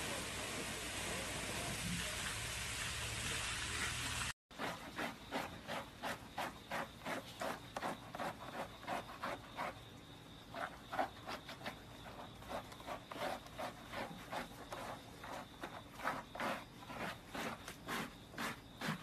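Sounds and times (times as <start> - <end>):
brush scrubbing wet dog coat: 3.7 - 9.8, 10.5 - 19.0.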